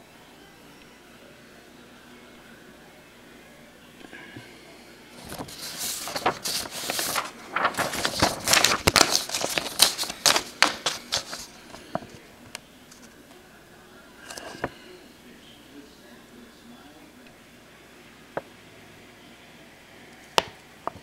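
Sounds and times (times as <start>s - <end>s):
paper sheets rustling: 5.2s - 12.2s, 14.2s - 14.8s.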